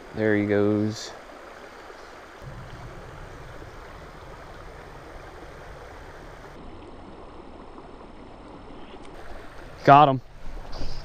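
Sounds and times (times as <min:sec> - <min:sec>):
stream water flowing: 0:00.0 - 0:11.0
low rumble: 0:02.4 - 0:06.9.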